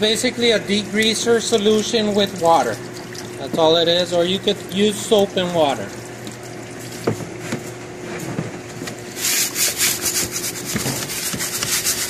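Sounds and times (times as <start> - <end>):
low steady hum: 0.0 - 12.0
scrubber rubbing on plastic: 9.1 - 12.0.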